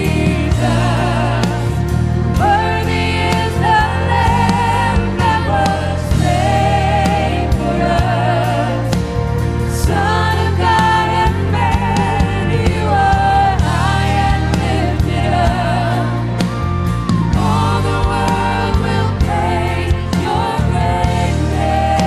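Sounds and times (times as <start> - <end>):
band playing: 0.0 - 22.0
bass notes: 0.0 - 22.0
drums: 0.0 - 22.0
piano: 0.0 - 22.0.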